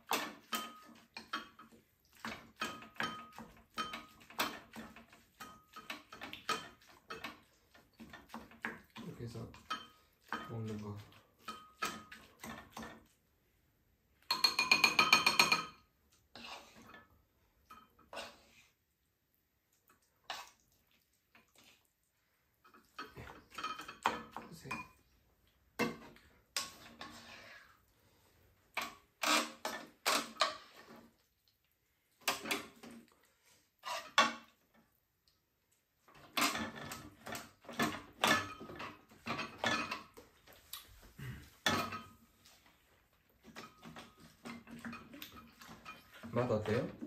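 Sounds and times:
utensils scraping and clinking dishes: 0:00.0 - 0:13.0, 0:14.3 - 0:15.8, 0:22.7 - 0:25.1, 0:25.8 - 0:27.6, 0:33.8 - 0:34.5, 0:36.2 - 0:40.2, 0:41.2 - 0:42.2, 0:43.4 - 0:47.0.

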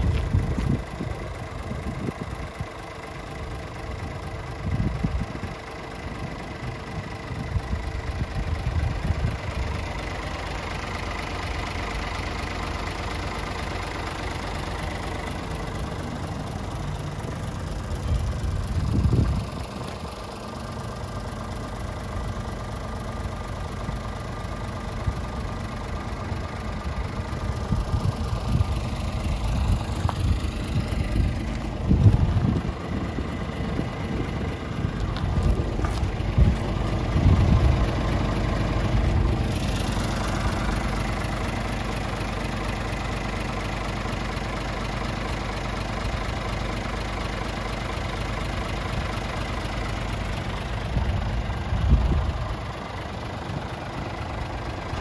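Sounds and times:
wind buffets on microphone: 0:00.0 - 0:02.4, 0:04.6 - 0:05.6, 0:18.2 - 0:19.6, 0:29.5 - 0:37.9, 0:51.0 - 0:52.5
diesel truck engine idling: 0:00.0 - 0:55.0.

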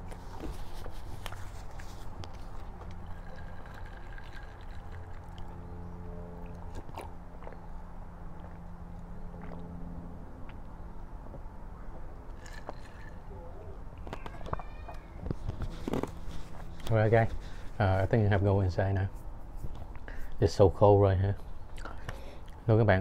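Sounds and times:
person chewing food: 0:06.4 - 0:10.8.

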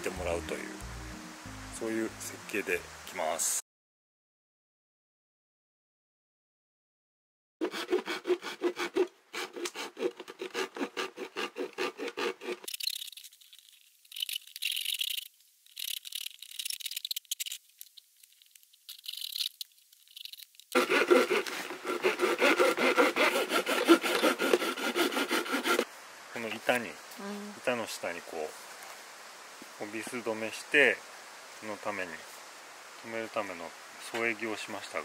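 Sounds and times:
hand saw cutting plastic: 0:07.6 - 0:12.7, 0:20.7 - 0:25.9
scratchy rasping: 0:07.6 - 0:13.2, 0:18.3 - 0:25.9.

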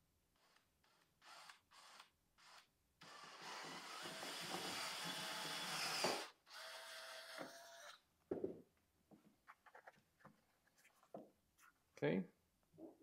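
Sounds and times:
cordless drill grinding through panel: 0:00.4 - 0:08.0.

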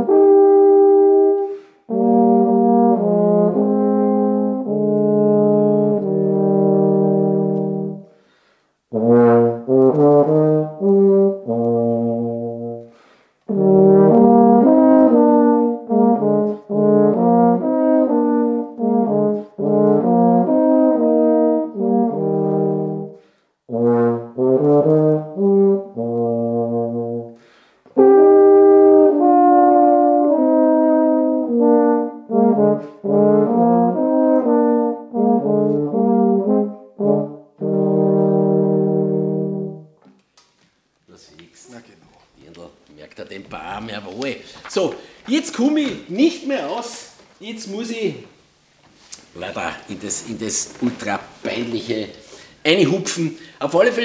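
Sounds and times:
tenor horns playing folk tune: 0:00.0 - 0:40.1.

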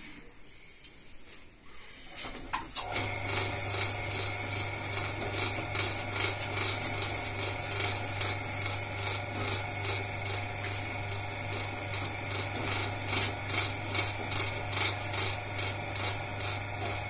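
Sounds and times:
potter's wheel motor hum: 0:02.8 - 0:17.0.

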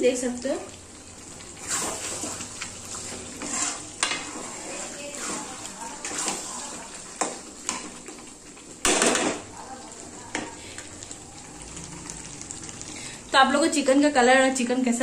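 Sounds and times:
faint sizzle of curry: 0:00.0 - 0:15.0
metal spatula scraping a pan: 0:01.6 - 0:07.8.

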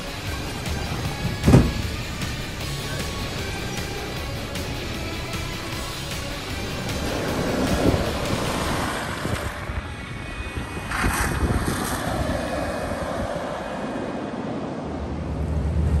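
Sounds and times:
surf breaking: 0:05.4 - 0:09.8
wind buffeting microphone: 0:06.3 - 0:16.0.

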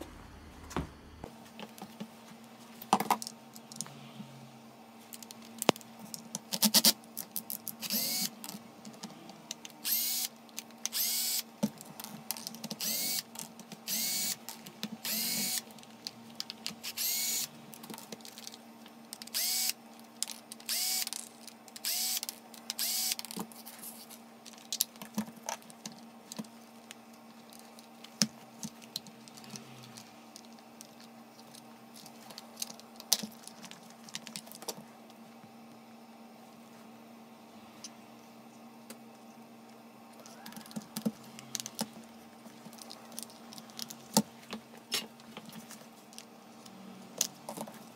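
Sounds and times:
cordless drill motor bursts: 0:07.8 - 0:08.4, 0:09.8 - 0:10.3, 0:10.9 - 0:11.5, 0:12.8 - 0:14.4, 0:15.0 - 0:15.7, 0:16.8 - 0:17.5, 0:19.3 - 0:19.8, 0:20.7 - 0:21.1, 0:21.8 - 0:22.2, 0:22.8 - 0:23.2.

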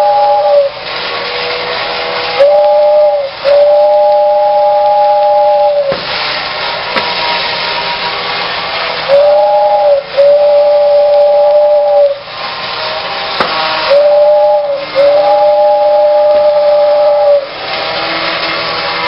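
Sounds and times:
toy train whirring: 0:00.0 - 0:19.0
toy train whistle toot: 0:00.0 - 0:19.0.

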